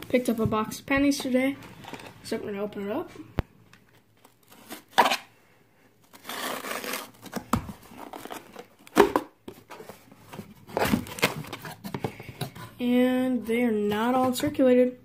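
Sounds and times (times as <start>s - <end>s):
tape scraping: 6.0s - 8.9s
packing tape tearing: 6.0s - 9.0s.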